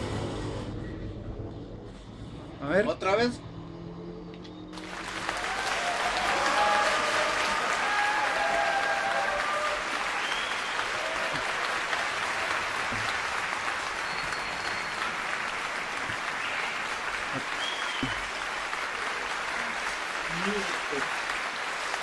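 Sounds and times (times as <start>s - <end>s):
crowd applauding: 4.7s - 22.0s.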